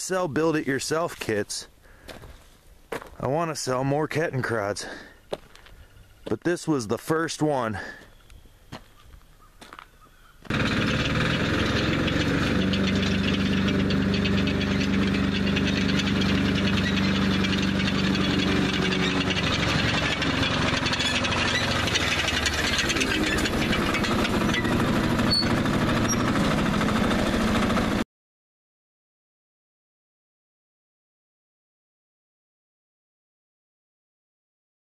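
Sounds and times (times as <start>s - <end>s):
tracked motorcycle engine pulsing: 10.4s - 28.0s.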